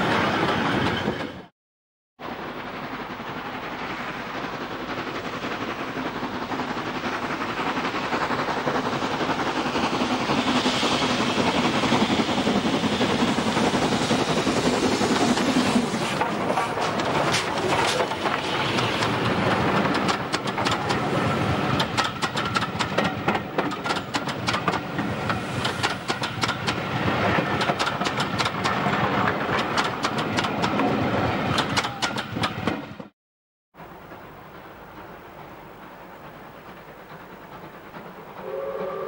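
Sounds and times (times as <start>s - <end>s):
steam locomotives passing: 2.2s - 33.1s, 33.8s - 39.0s
wheels clattering over rail joints: 14.8s - 33.1s.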